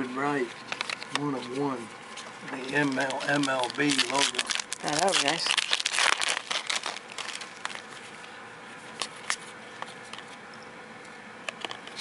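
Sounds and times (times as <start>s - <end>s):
foil wrapper crinkling: 2.2s - 8.3s.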